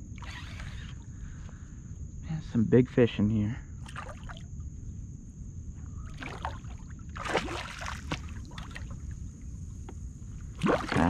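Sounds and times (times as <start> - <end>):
fish splashing at surface: 6.2 - 9.0, 10.6 - 11.0.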